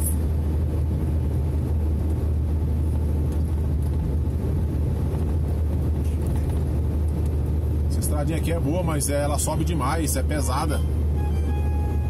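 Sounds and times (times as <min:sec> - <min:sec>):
truck engine and tyre drone: 0:00.0 - 0:12.0.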